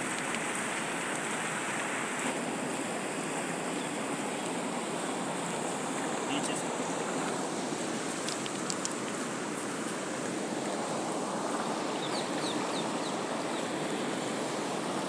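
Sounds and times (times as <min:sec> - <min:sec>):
river water rushing: 0:00.0 - 0:15.0
wind: 0:00.0 - 0:15.0
bird chirping: 0:12.0 - 0:13.7.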